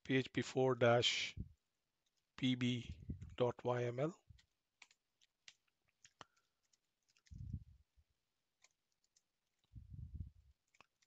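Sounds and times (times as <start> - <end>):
computer keyboard typing: 3.2 - 7.7, 8.4 - 9.8, 10.4 - 11.0.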